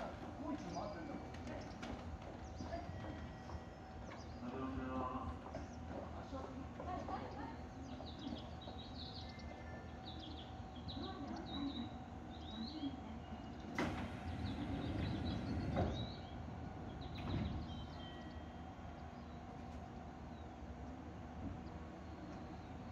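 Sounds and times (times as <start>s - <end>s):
small birds chirping: 0.0s - 22.9s
train sliding doors closing: 12.5s - 20.3s.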